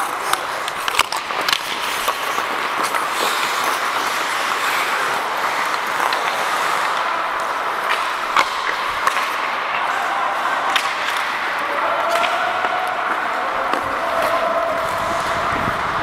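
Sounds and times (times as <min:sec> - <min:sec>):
hockey sticks and puck clacking: 0:00.0 - 0:16.0
skate blades scraping ice: 0:00.0 - 0:16.0.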